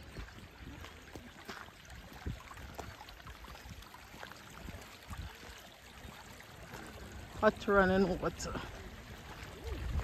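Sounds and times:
stream flowing over rock: 0.0s - 10.0s.

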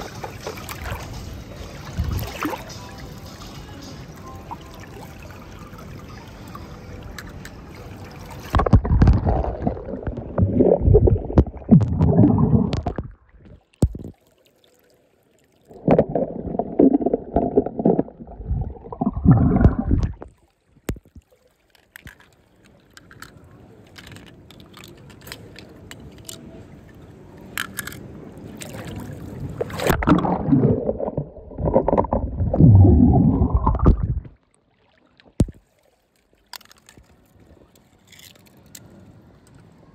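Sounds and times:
water splashing and gurgling: 0.0s - 2.8s, 4.5s - 14.8s, 15.5s - 23.3s, 27.8s - 38.6s.

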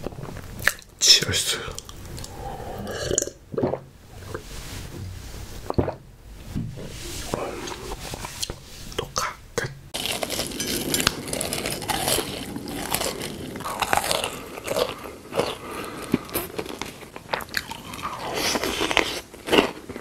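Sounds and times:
crunchy bites and chewing: 10.0s - 20.0s.

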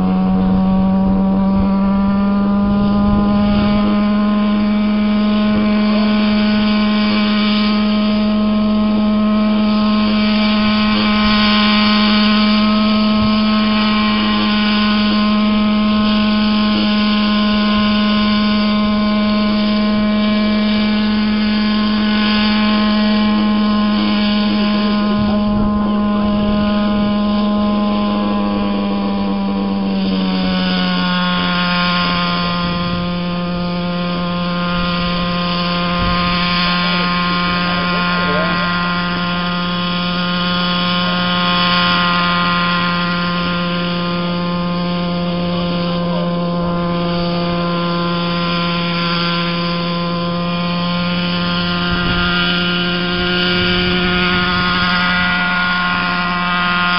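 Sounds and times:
model helicopter whining: 0.0s - 56.9s.

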